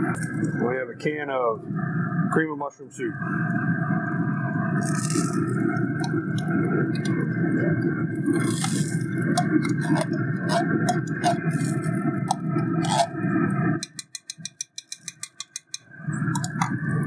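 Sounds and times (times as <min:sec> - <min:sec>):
low rumble: 0:03.0 - 0:13.9
thick soup squelching: 0:04.8 - 0:14.0
spoon clicking on metal can: 0:08.6 - 0:13.1, 0:13.8 - 0:16.8.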